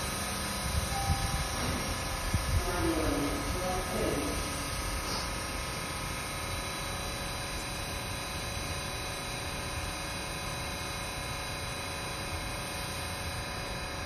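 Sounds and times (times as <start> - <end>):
subway train equipment humming: 0.0 - 14.0
steady tones: 0.5 - 5.8
low rumble: 0.7 - 5.4.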